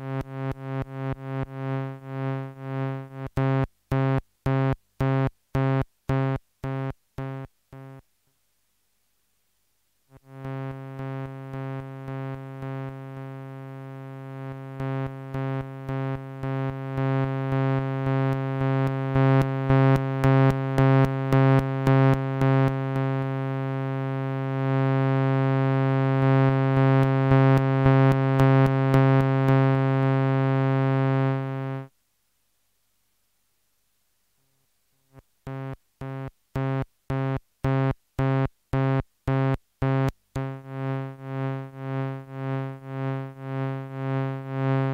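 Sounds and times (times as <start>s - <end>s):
buzzy synthesizer tone pulsing: 35.5s - 44.9s.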